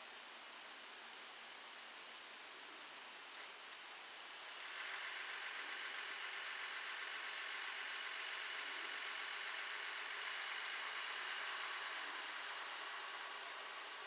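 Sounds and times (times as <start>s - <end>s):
diesel railcar engine approaching: 4.3s - 14.0s.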